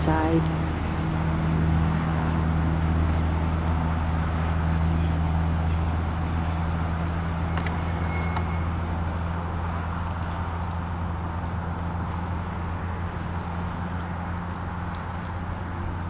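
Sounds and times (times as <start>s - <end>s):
motorboat engine drone: 0.0s - 9.6s.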